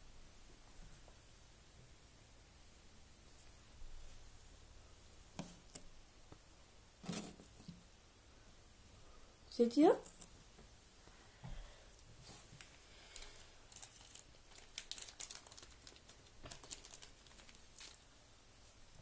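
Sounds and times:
plastic bag crinkling: 12.6 - 18.1.

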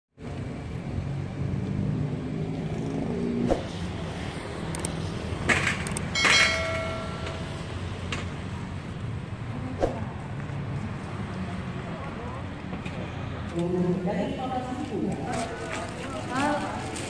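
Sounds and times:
road traffic rumble: 0.2 - 17.0
sharp clicks: 4.7 - 5.0
bright ringing chime: 6.2 - 7.7.

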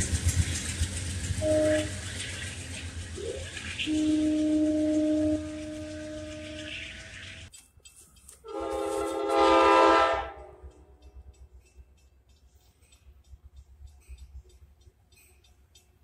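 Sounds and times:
train horn chord: 1.4 - 2.1, 3.8 - 7.2, 8.4 - 10.7
train horn steady note: 1.4 - 2.1, 3.8 - 7.2, 8.4 - 10.8.

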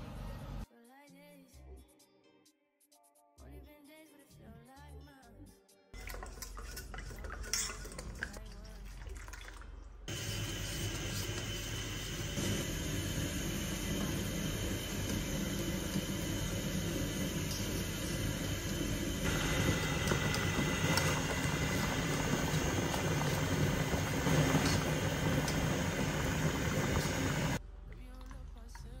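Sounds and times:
metal spoon scraping a bowl: 6.0 - 8.4
water boiling in a pan: 6.0 - 27.6.

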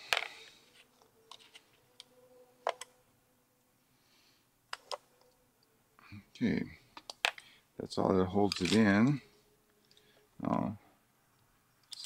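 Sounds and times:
small metal parts clicking: 8.5 - 8.9, 11.8 - 12.0.

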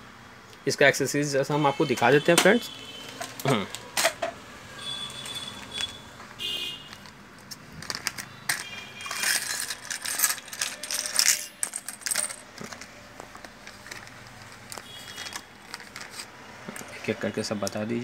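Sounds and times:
small metal accessories clinking: 7.0 - 16.2
plastic bag crinkling: 12.1 - 16.3.

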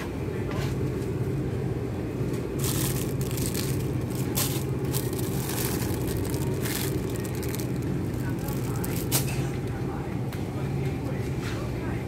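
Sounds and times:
steady low hum: 0.0 - 12.0
crinkling handling noise: 2.3 - 9.7.

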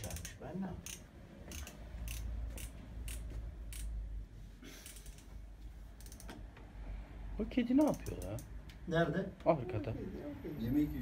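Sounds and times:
ratchet clicking: 0.0 - 4.0, 4.8 - 5.4, 6.0 - 6.4, 7.8 - 8.6.

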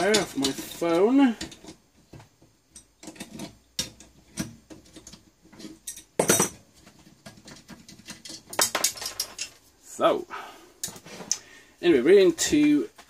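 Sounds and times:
metal tools clinking on workbench: 0.0 - 1.8, 5.6 - 6.6, 7.4 - 9.6
wrench clattering down: 8.0 - 9.6.

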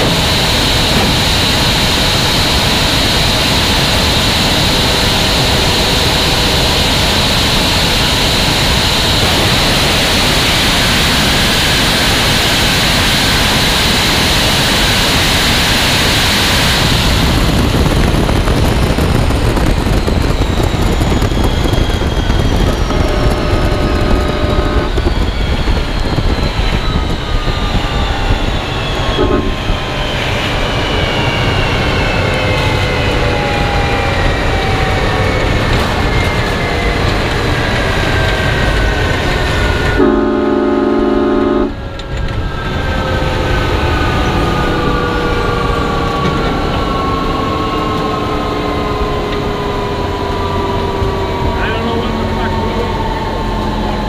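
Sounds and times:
jet engine turbine whine spooling down: 0.0 - 54.0
steady horn-like tones: 22.8 - 25.1, 29.2 - 29.7, 40.0 - 41.8.

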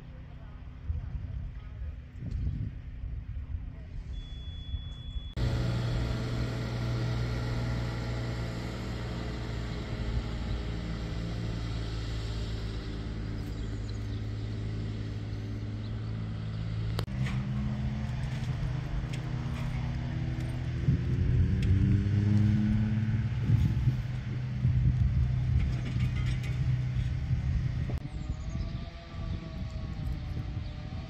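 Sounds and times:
engine running steadily: 0.0 - 31.0.

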